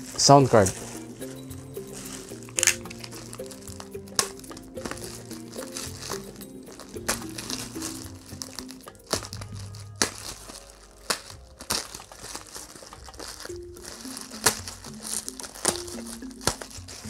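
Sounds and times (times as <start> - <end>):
bubble wrap crinkling: 0.0 - 17.0
sharp bubble wrap crackles: 0.0 - 17.0
soft background music: 0.0 - 17.0.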